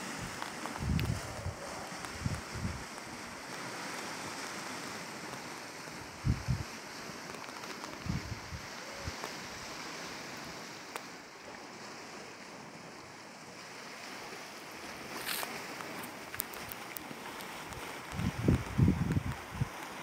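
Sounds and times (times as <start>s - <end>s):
waves breaking on rocks: 0.0s - 20.0s
wind thumps on microphone: 0.2s - 2.9s, 6.0s - 6.7s, 7.9s - 9.2s, 17.5s - 19.8s.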